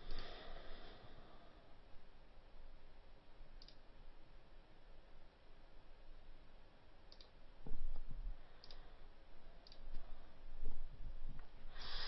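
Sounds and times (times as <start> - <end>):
computer mouse clicks: 3.6 - 3.9, 7.1 - 8.9, 9.6 - 10.1
burst of hiss: 11.7 - 12.0.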